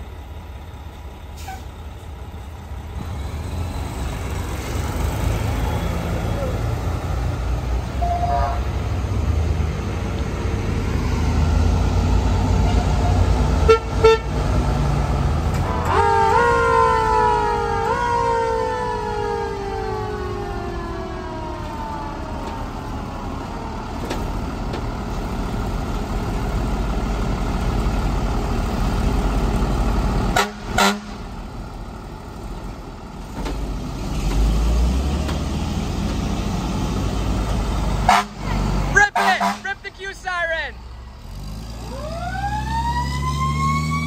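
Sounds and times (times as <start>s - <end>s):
fire engine motors running: 0.0s - 44.0s
mechanical siren winding down: 41.9s - 44.0s.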